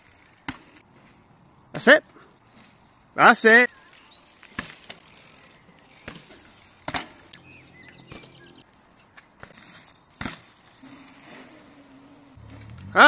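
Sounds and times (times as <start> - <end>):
bicycle rolling on tarmac: 0.0 - 13.0
bicycle knocks: 6.0 - 7.4.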